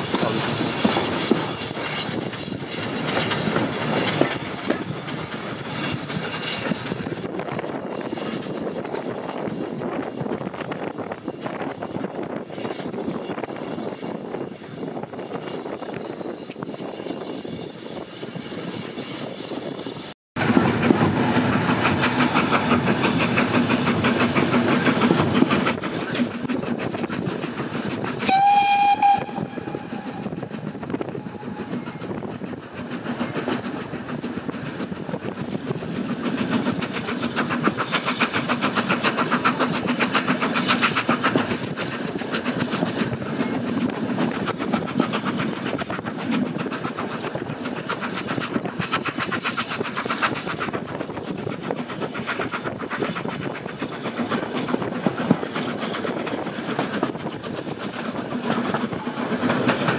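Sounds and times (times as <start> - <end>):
train wheels clattering on rails: 0.0 - 59.9
train warning blast: 28.2 - 31.9.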